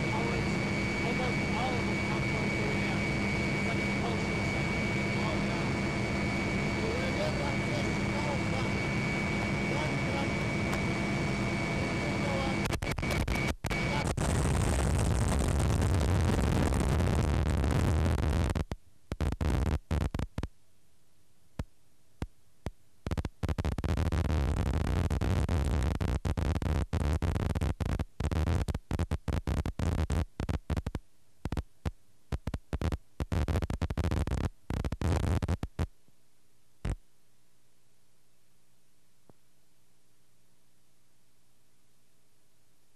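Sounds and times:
helicopter cabin rumble: 0:00.0 - 0:14.4
faint steady hum: 0:00.0 - 0:42.9.

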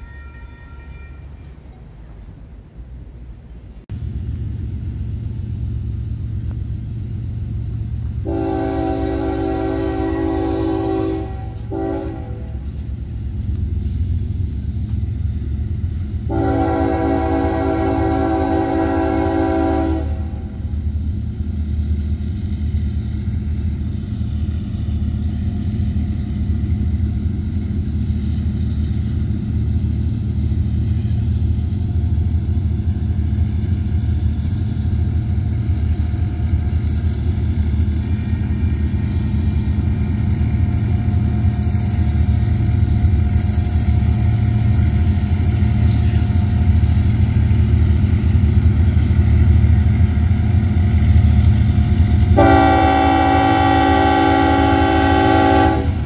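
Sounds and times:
train horn: 0:00.0 - 0:01.6, 0:08.2 - 0:12.8, 0:16.2 - 0:20.7, 0:52.2 - 0:56.0
low engine rumble: 0:01.1 - 0:56.0.

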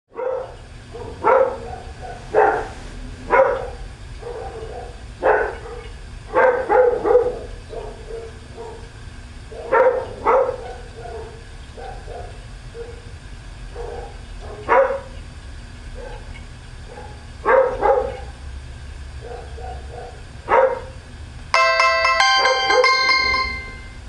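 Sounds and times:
dog barking: 0:00.1 - 0:08.9, 0:09.5 - 0:13.1, 0:13.7 - 0:15.2, 0:16.0 - 0:16.3, 0:16.9 - 0:18.4, 0:19.2 - 0:21.0
low steady hum: 0:21.4 - 0:24.0.

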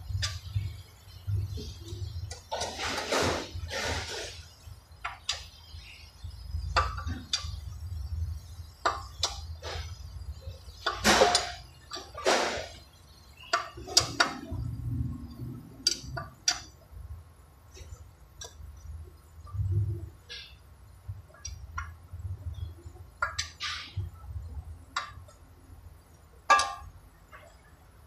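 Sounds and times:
low workshop hum: 0:00.0 - 0:28.0.

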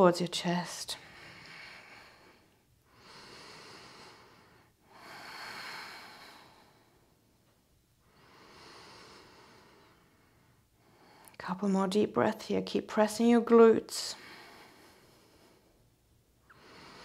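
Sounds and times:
woman breathing deeply: 0:01.0 - 0:11.4, 0:14.2 - 0:17.0.

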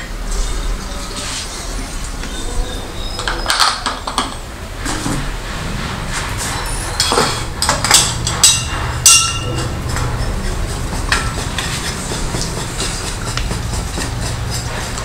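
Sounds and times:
steady low hum: 0:00.0 - 0:15.0
metallic clinks and knocks: 0:07.0 - 0:15.0.

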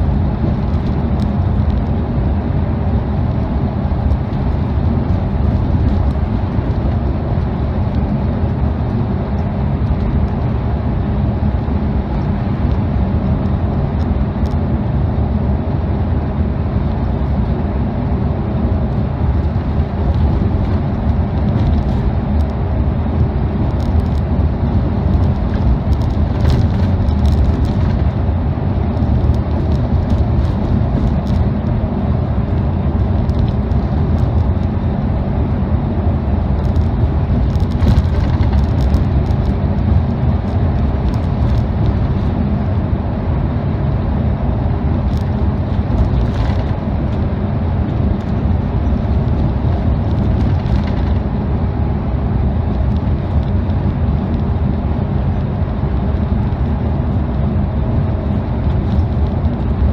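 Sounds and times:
coach engine and tyre rumble: 0:00.0 - 0:59.9
faint clicks and rattles: 0:36.6 - 0:42.3.

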